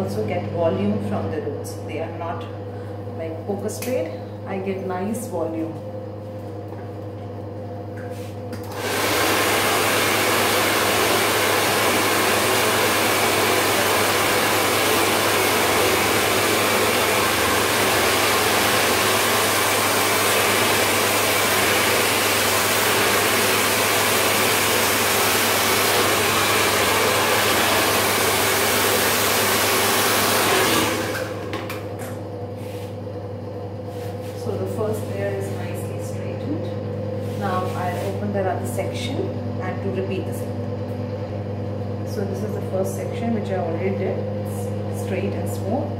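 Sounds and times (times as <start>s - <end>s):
steady low hum: 0.0s - 8.7s, 31.7s - 45.9s
hair dryer blowing air: 8.1s - 33.0s, 33.8s - 39.2s.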